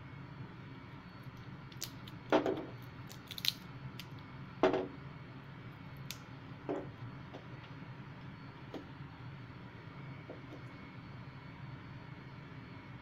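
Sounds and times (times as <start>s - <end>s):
steady low hum: 0.0s - 13.0s
garlic skins crackling: 3.0s - 3.6s.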